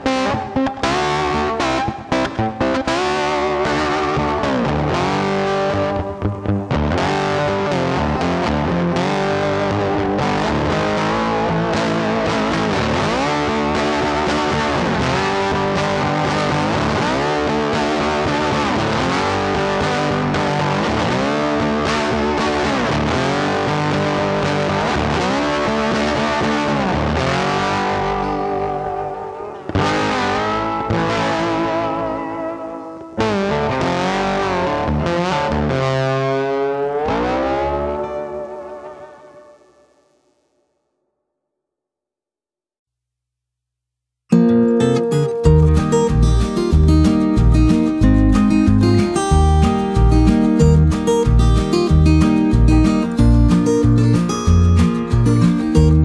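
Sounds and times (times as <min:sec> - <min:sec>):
distorted electric guitar music: 0:00.0 - 0:40.6, 0:44.3 - 0:56.0.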